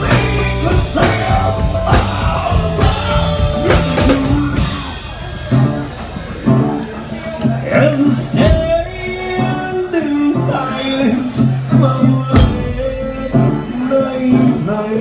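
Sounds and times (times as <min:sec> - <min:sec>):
man singing into a microphone: 0:00.0 - 0:04.6, 0:07.6 - 0:15.0
drum kit hits: 0:00.0 - 0:09.5, 0:12.3 - 0:13.8
electric bass: 0:00.0 - 0:15.0.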